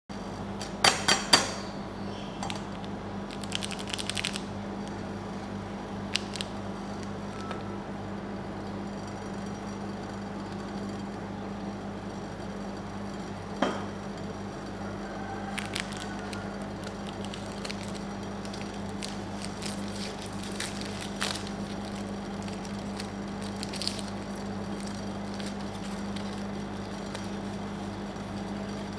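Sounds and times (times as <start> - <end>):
steady low hum: 0.1 - 28.9
plastic wrapper crinkling: 2.7 - 5.0, 6.0 - 7.6, 15.4 - 28.5.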